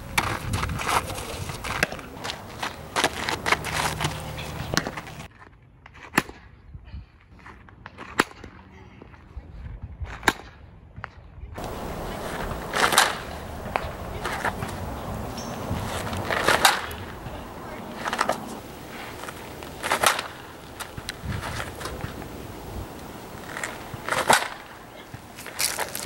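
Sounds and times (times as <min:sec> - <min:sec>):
outdoor background noise: 0:00.0 - 0:26.0
bat striking ball: 0:01.7 - 0:05.3, 0:11.6 - 0:26.0.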